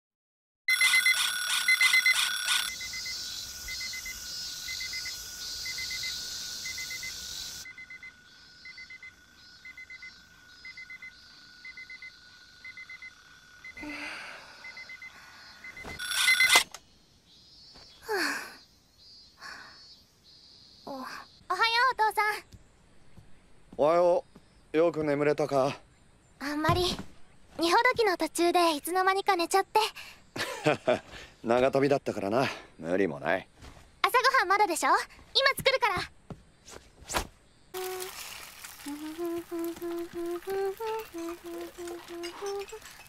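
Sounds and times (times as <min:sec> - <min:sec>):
electronic alarm clock beeping: 0:00.7 - 0:13.8, 0:14.6 - 0:16.7.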